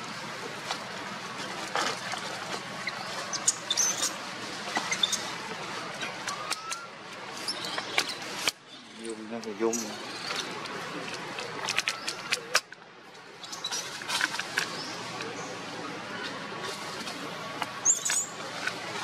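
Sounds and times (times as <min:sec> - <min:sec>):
high squeaks and chirps: 0:02.8 - 0:09.0.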